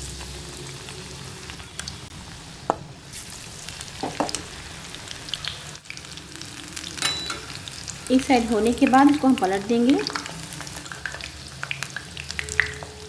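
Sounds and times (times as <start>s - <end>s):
batter frying in hot oil: 0.0s - 13.0s.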